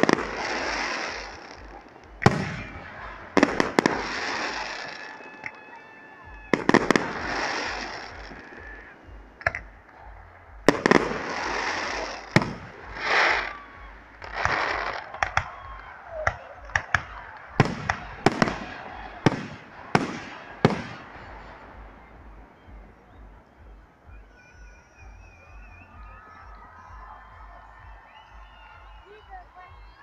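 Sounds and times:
fireworks bursting bangs: 0.0 - 23.4
crackling hiss of fireworks: 0.0 - 30.0.

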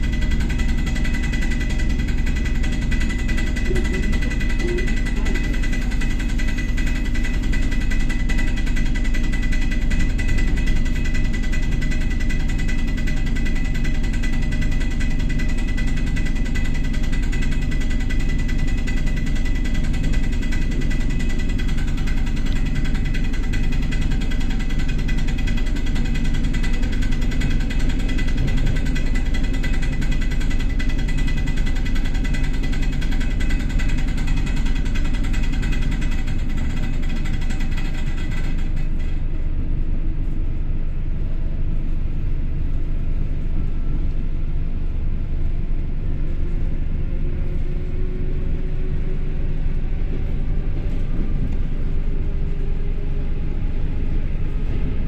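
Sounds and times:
constant high tone: 0.0 - 6.4
lower steady tones: 0.0 - 16.8
train running gear rumble: 0.0 - 55.0.

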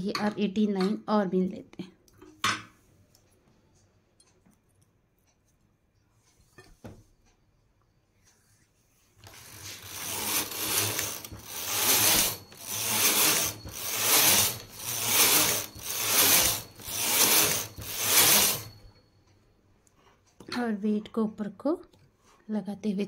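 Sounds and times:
knitting machine carriage clattering: 9.2 - 18.7.

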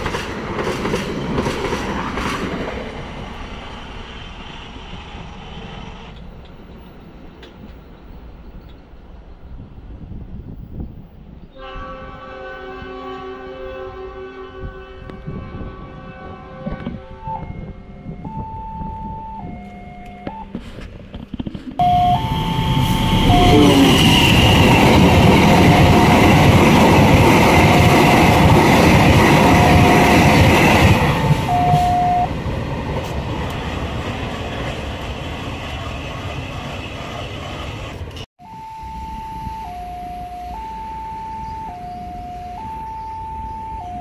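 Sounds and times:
train wheels rumbling on rails: 0.0 - 12.2, 14.6 - 38.3
two-tone level-crossing alarm: 17.3 - 20.6, 21.8 - 32.4, 38.4 - 44.0.

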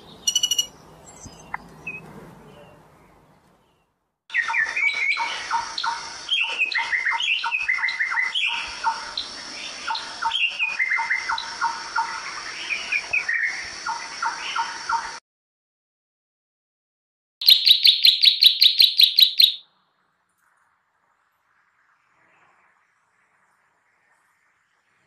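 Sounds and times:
songbird chirping: 0.0 - 15.2, 17.4 - 19.8.

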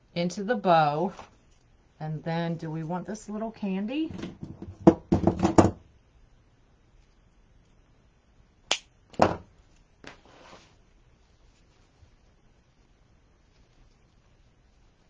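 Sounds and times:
short rustle: 10.0 - 12.2.

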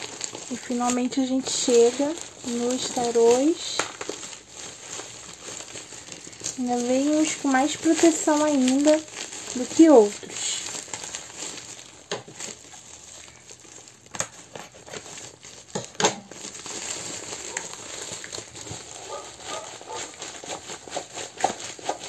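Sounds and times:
plastic packaging crinkling: 0.0 - 22.0.

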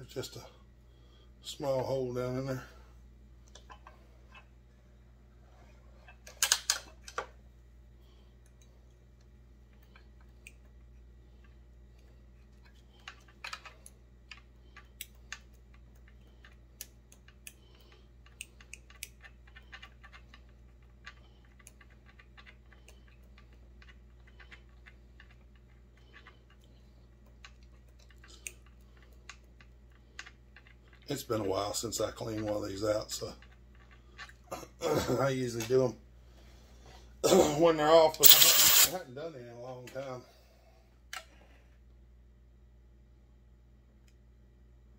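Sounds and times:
steady low hum: 0.0 - 44.9
metal clicks and scratches: 38.2 - 38.9.

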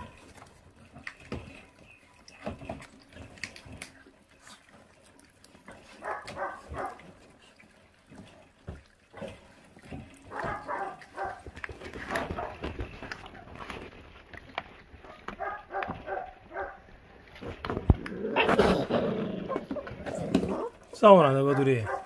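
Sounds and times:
puppies chewing meat and bone: 0.0 - 22.0
puppy growling: 17.9 - 22.0.

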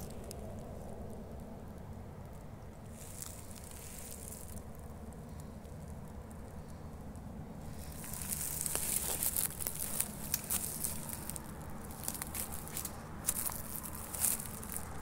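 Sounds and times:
footsteps on dry pine needles: 2.9 - 4.6, 7.6 - 15.0.

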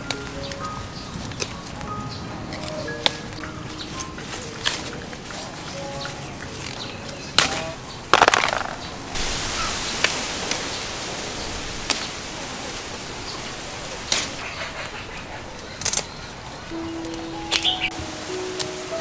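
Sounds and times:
leaves rustling and crackling: 0.0 - 19.0
fruit stems snapping: 6.6 - 8.8, 14.1 - 14.4.

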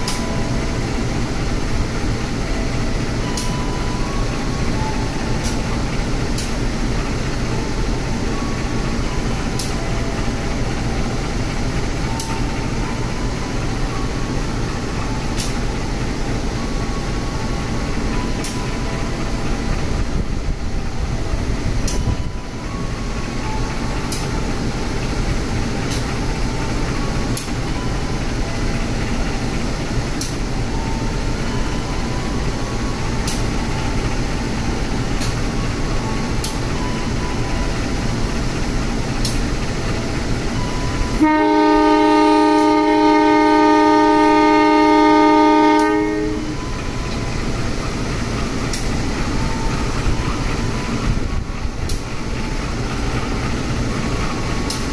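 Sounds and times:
diesel engines rumbling: 0.0 - 54.9
train horn blast: 41.2 - 46.8.

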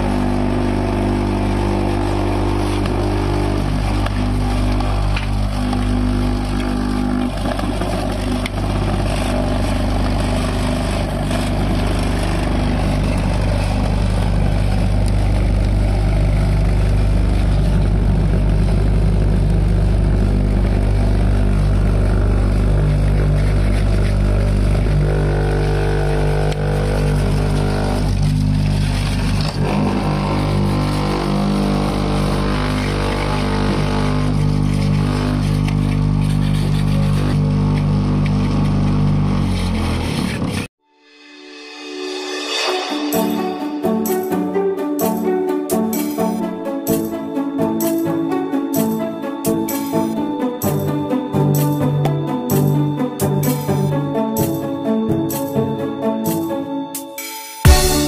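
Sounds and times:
vibrating table motor humming: 0.0 - 40.7.

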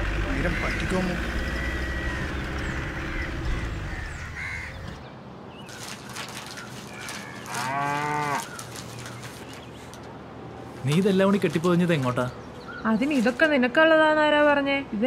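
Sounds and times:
cow mooing: 7.4 - 8.5.

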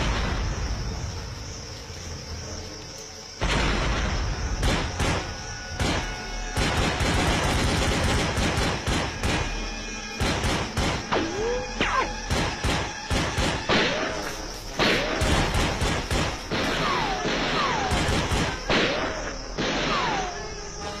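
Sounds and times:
rifle gunshots: 3.4 - 11.3, 12.1 - 20.2.

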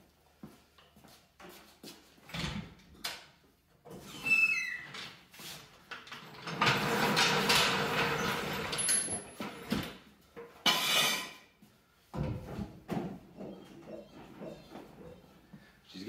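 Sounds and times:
floor jack wheels rumbling on concrete: 6.1 - 9.7
short scrape: 10.7 - 11.4.

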